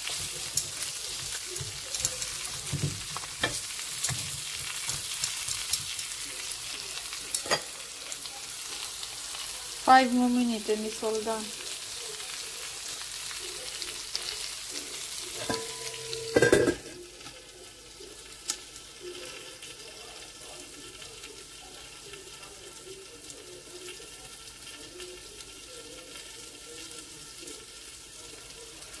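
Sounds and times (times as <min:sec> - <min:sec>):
chicken sizzling in a skillet: 0:00.0 - 0:29.0
steel lid clanking onto pan: 0:15.4 - 0:16.9.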